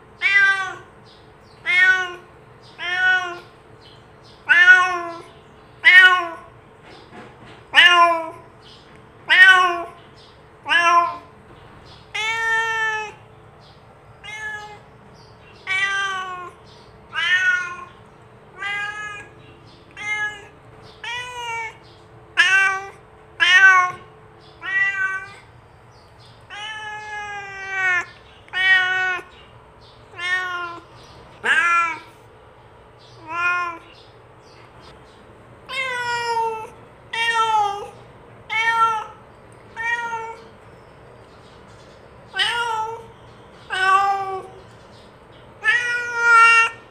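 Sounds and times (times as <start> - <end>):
cat meowing: 0.2 - 0.9, 1.6 - 3.5, 4.4 - 6.6, 7.7 - 8.4, 9.2 - 10.0, 10.6 - 11.3, 12.1 - 13.2, 14.2 - 25.5, 26.5 - 29.4, 30.1 - 32.2, 33.1 - 34.0, 35.6 - 40.5, 42.3 - 44.6, 45.6 - 46.9.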